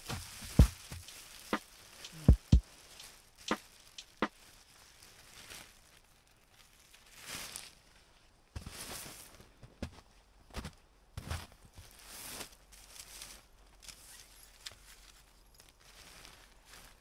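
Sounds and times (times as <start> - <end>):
footsteps crunching on snow: 0.0 - 4.4.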